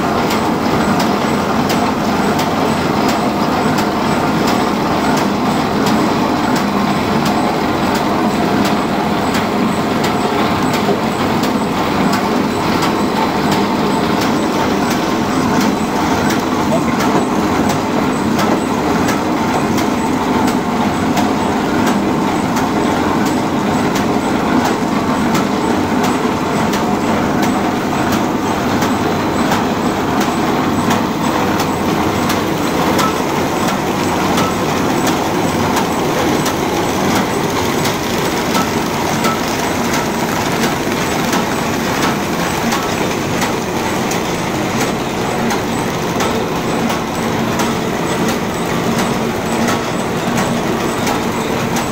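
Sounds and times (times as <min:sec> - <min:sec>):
machine clattering: 0:27.5 - 0:51.9.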